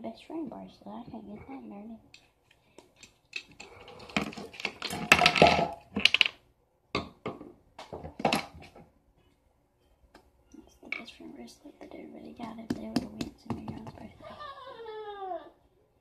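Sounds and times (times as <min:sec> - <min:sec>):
objects knocking on a tabletop: 0:04.2 - 0:06.3, 0:07.0 - 0:08.8, 0:12.7 - 0:14.1.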